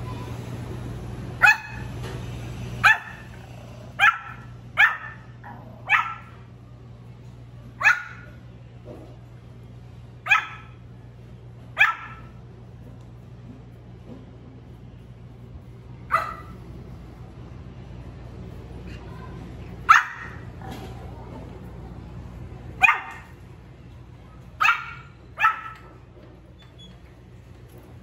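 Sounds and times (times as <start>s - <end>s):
steady low hum: 0.0s - 28.0s
puppy barking high-pitched: 1.4s - 1.9s, 2.8s - 3.4s, 4.0s - 6.4s, 7.8s - 8.4s, 10.2s - 10.8s, 11.8s - 12.4s, 16.1s - 16.6s, 19.8s - 20.5s, 22.8s - 23.4s, 24.6s - 26.0s.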